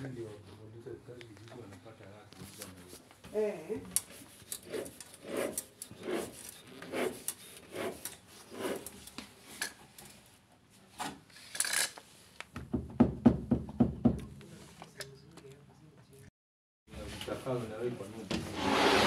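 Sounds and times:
rubbing scrapes: 18.5s - 19.0s
sharp scrape: 18.5s - 19.0s.

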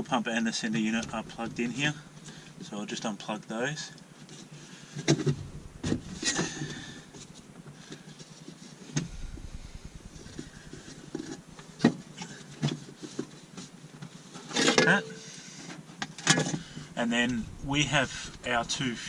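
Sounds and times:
low handling noise: 0.7s - 2.7s, 5.2s - 7.5s, 9.0s - 12.2s, 16.6s - 19.0s.

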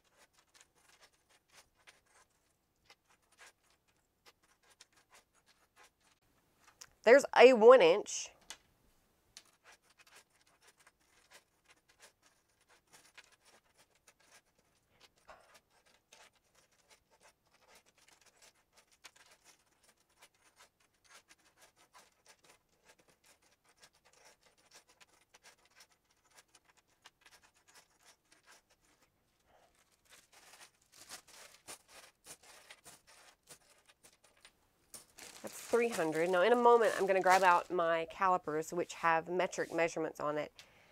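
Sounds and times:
metal clasps clinking and scraping: 9.4s - 39.9s.

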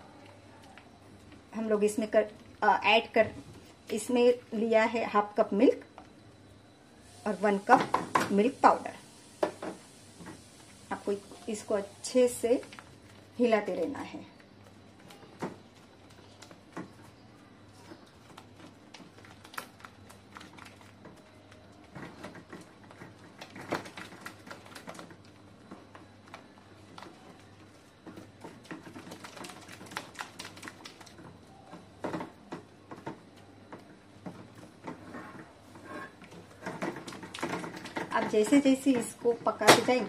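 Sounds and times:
spatula scraping pan: 34.8s - 37.0s.

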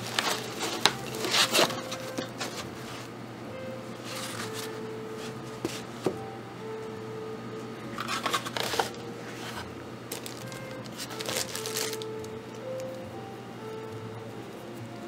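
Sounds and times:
packaging rustling and crinkling: 0.0s - 3.1s, 4.0s - 5.9s, 8.0s - 12.3s.

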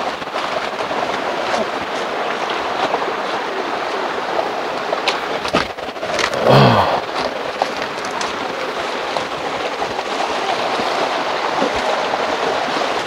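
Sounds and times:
flowing water rushing: 0.0s - 13.0s.

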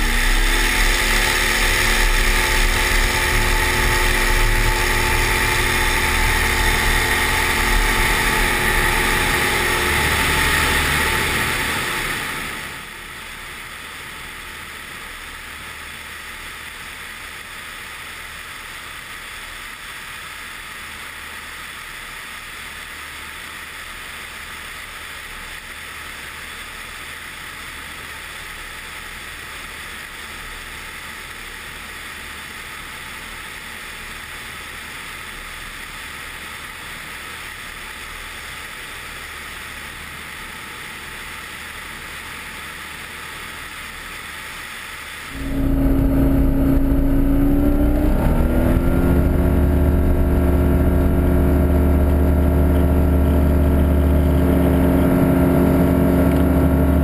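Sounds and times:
airflow rushing past: 0.0s - 12.9s, 45.3s - 57.0s
aircraft engine drone: 0.0s - 26.2s, 36.6s - 57.0s.

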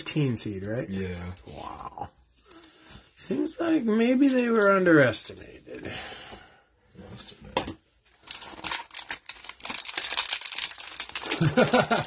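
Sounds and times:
plastic wrapper crinkling and tearing: 3.3s - 5.4s, 8.1s - 12.0s.

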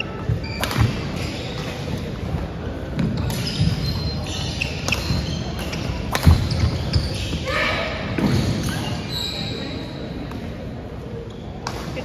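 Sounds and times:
shoes squeaking on court: 0.0s - 7.5s, 8.2s - 10.3s, 11.2s - 12.0s
racket striking shuttlecock: 5.6s - 6.5s.

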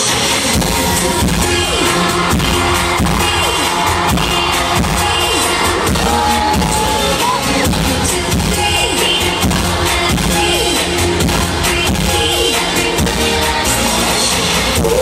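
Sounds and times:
loud pop concert music: 0.0s - 15.0s.

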